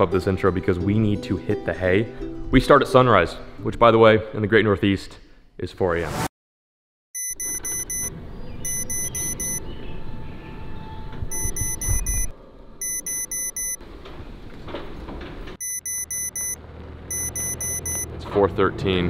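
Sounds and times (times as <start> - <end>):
alarm clock beeping: 7.2 - 9.6, 11.3 - 13.8, 15.6 - 18.1.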